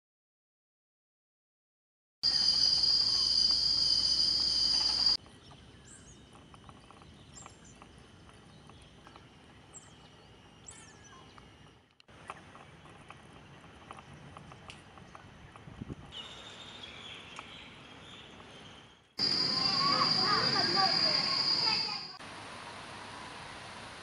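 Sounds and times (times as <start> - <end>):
high-pitched insect chorus: 2.2 - 5.2, 19.2 - 22.2.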